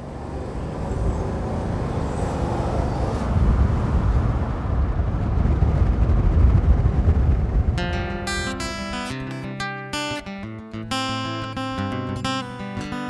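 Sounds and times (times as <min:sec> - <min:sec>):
truck engine and tyre rumble: 0:00.0 - 0:08.5.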